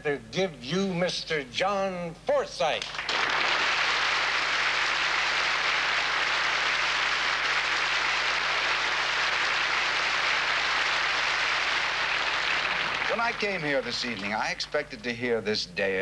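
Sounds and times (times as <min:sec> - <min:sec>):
audience applauding: 0:02.8 - 0:14.4.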